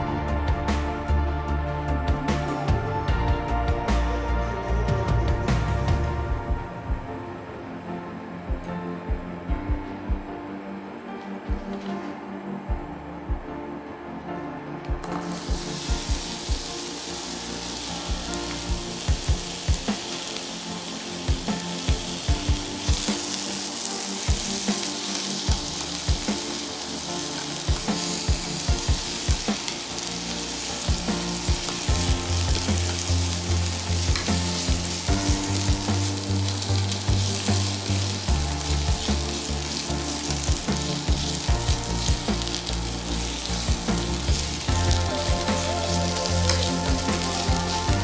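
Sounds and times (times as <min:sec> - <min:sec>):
vegetables sizzling in frying pan: 0:15.2 - 0:48.0.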